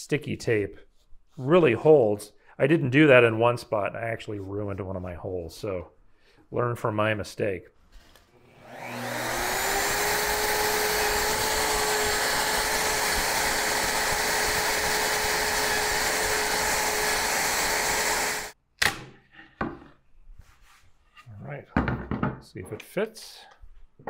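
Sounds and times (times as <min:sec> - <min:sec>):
router motor whining: 0:08.4 - 0:18.6.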